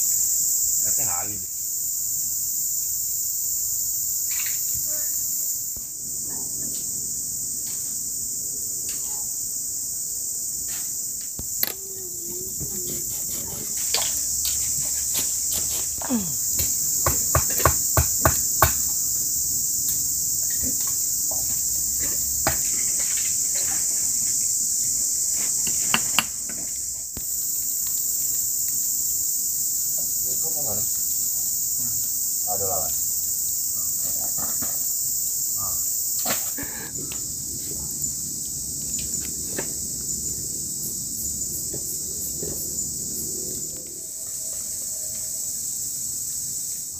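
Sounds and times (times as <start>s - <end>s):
forest insects droning: 0.0s - 46.9s
sharp knocks: 16.6s - 18.9s.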